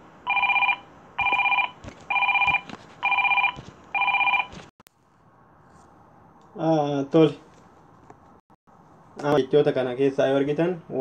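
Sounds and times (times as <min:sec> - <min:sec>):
phone ringtone beeps: 0:00.3 - 0:04.5.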